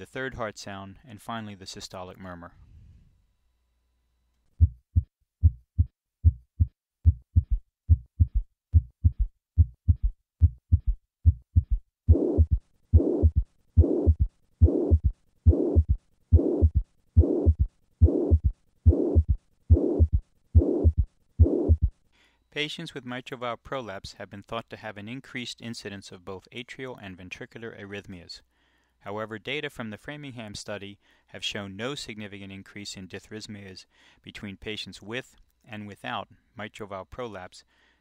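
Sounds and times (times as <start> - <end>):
loud blowing heart murmur: 4.6 - 21.9
heartbeat lub-dub sounds: 4.6 - 22.0
third heart sound: 4.6 - 22.0.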